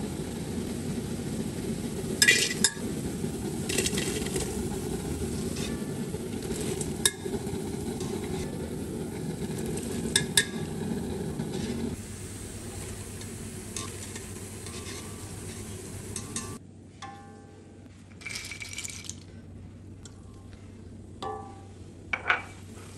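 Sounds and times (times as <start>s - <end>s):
hot oil sizzling: 0.0s - 16.6s.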